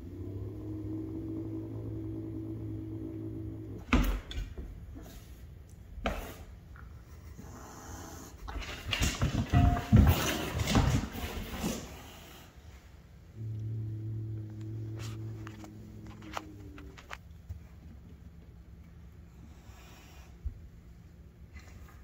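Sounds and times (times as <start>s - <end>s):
low steady hum: 0.0s - 22.0s
cats scuffling on wooden floor: 8.4s - 12.2s.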